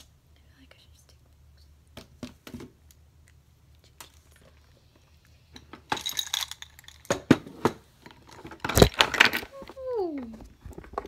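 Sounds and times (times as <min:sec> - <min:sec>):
small bottles clinking together: 0:05.6 - 0:07.2.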